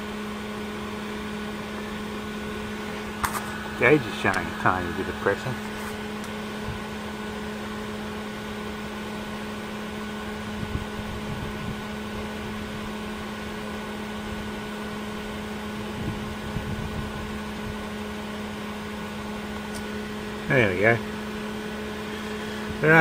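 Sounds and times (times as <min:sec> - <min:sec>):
electric motor humming: 0:00.0 - 0:13.7, 0:18.6 - 0:23.0.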